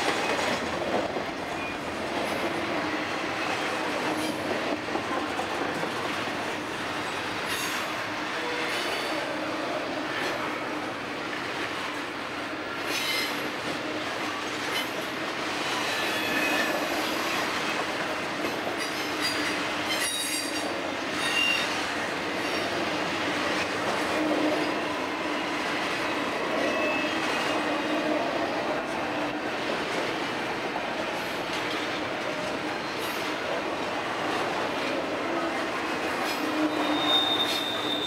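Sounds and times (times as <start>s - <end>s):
train wheels rumbling on rail: 0.0s - 38.0s
high-pitched wheel squeals: 15.8s - 16.9s, 21.2s - 21.8s, 36.4s - 38.0s.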